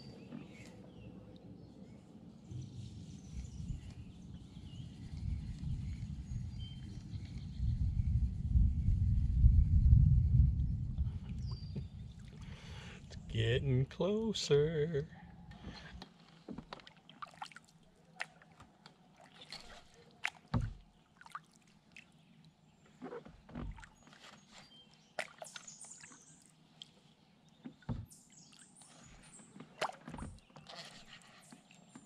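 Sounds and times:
water sloshing: 11.3s - 13.0s, 15.6s - 22.2s, 22.8s - 32.0s
dull thumps on hull: 20.5s - 20.9s, 23.2s - 23.9s, 27.6s - 28.2s.

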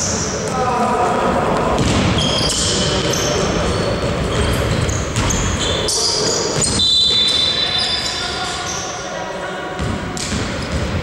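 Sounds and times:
sneakers squeaking on court: 1.8s - 9.0s, 9.8s - 11.0s
basketball bouncing: 9.8s - 11.0s.

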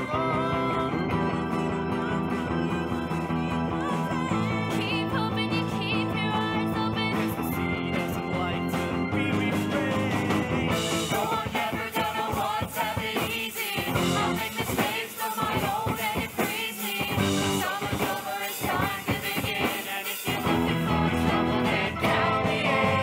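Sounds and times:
rock band playing: 0.0s - 23.0s
drum beat: 9.7s - 23.0s.

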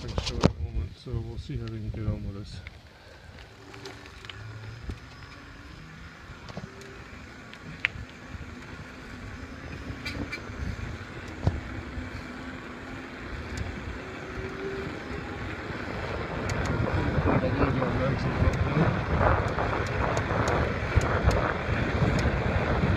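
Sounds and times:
tyre and wind rumble: 0.0s - 22.9s
bike rattles and knocks: 3.3s - 12.3s.

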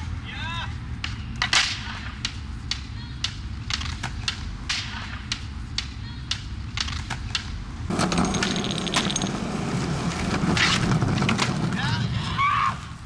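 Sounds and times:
skateboard clacking: 1.0s - 12.0s
skateboard wheels rolling on concrete: 6.5s - 13.0s.

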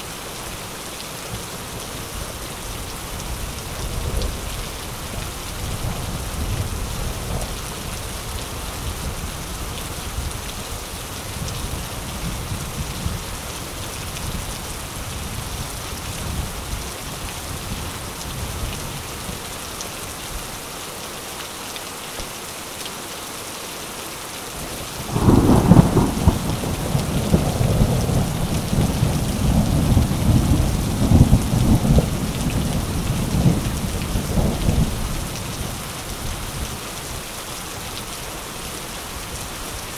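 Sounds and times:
steady rain: 0.0s - 39.9s
loud thunderclap: 25.1s - 32.7s
low rolling thunder: 25.1s - 35.7s.

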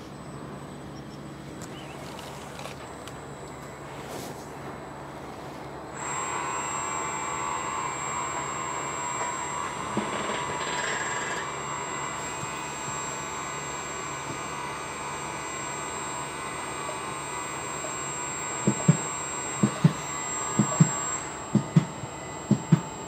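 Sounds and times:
electric drives whining: 0.0s - 23.0s
machinery knock: 18.6s - 22.9s.

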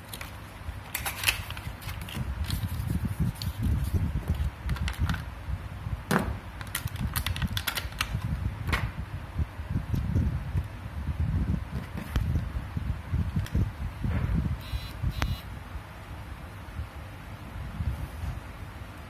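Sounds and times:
plastic and cardboard packaging crinkling: 0.0s - 5.3s, 6.6s - 8.2s.

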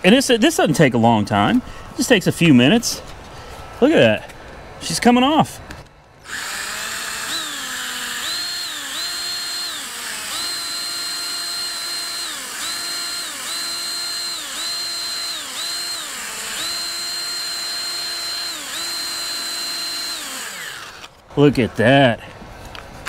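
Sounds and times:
electric drill motor whine: 6.2s - 21.2s.

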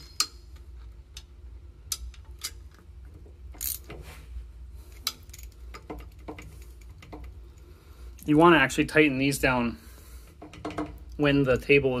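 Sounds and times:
ratchet wrench clicking: 3.6s - 3.9s.

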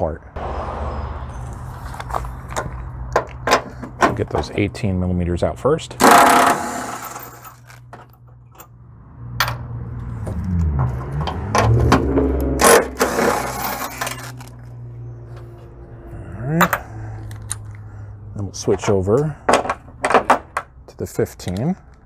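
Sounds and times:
metallic clicks of socket and bolts: 16.7s - 17.8s, 21.4s - 22.0s.

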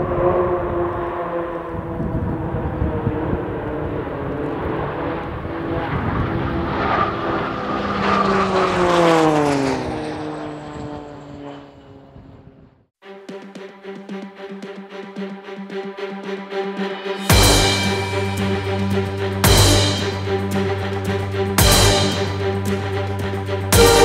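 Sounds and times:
turboprop aircraft flying past: 0.0s - 12.8s.

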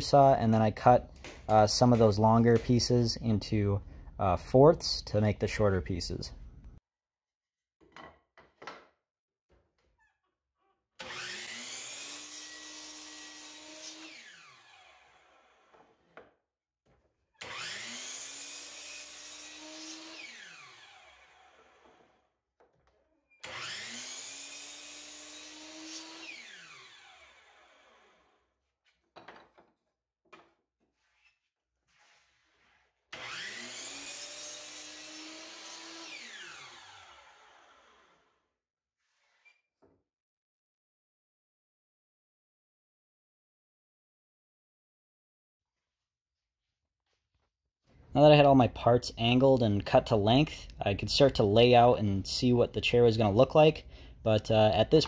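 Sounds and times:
boards clicking and knocking: 7.8s - 9.7s, 29.0s - 30.6s
miter saw whining and cutting: 11.0s - 15.7s, 17.4s - 22.1s, 23.4s - 28.3s, 33.2s - 38.2s.

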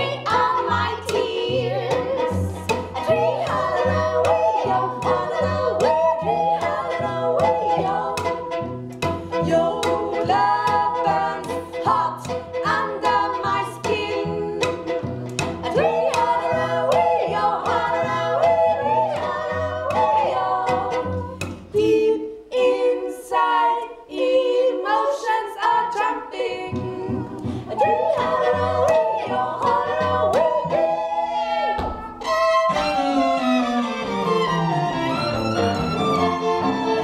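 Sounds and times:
women singing together: 0.0s - 8.7s, 9.3s - 33.0s
violins and cello playing: 0.0s - 21.7s, 26.7s - 37.0s.

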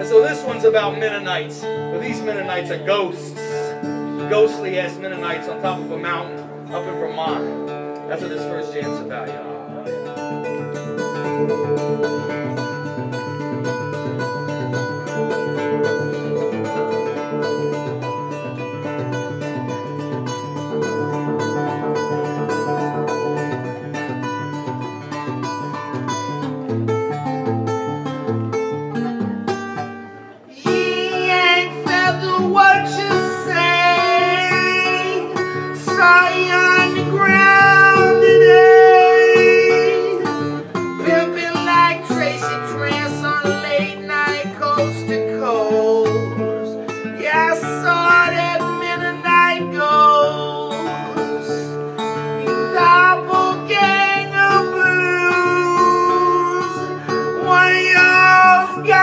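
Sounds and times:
man singing: 0.0s - 6.9s, 30.5s - 59.0s
acoustic guitar: 0.0s - 59.0s.

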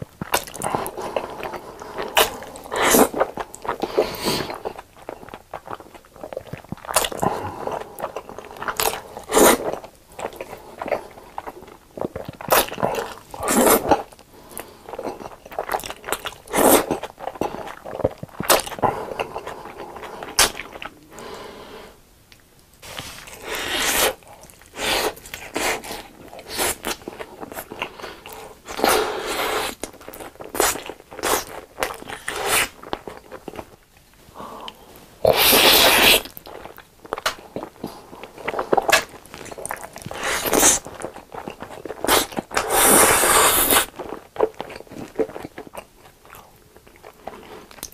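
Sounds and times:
wet chewing: 0.0s - 21.4s, 22.8s - 47.9s
noodles slurped: 22.8s - 32.9s, 35.2s - 45.4s.

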